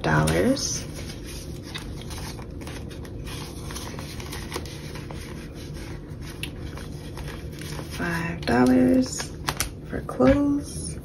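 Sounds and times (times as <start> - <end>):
paper and plastic rustling: 0.0 - 10.5
small clicks of plastic envelope: 6.3 - 9.8.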